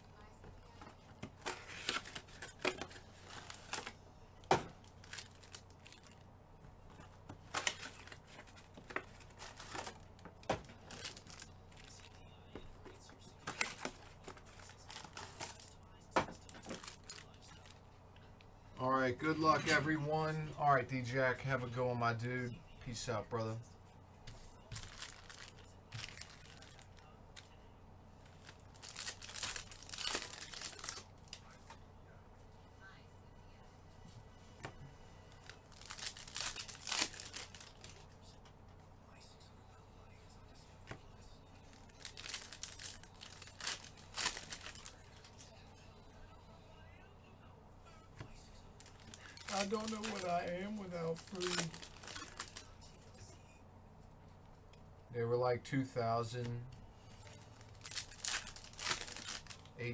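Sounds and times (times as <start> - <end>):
foil wrappers tearing and crinkling: 1.4 - 4.0, 4.8 - 6.2, 7.4 - 10.1, 10.7 - 12.2, 24.7 - 27.0, 28.3 - 31.5, 35.3 - 38.0, 41.8 - 45.3, 48.8 - 52.7, 57.2 - 59.9.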